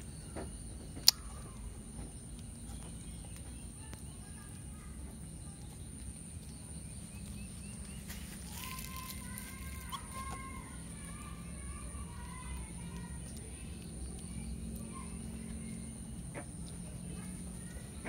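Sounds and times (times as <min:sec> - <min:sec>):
sharp click: 0:01.0 - 0:01.2.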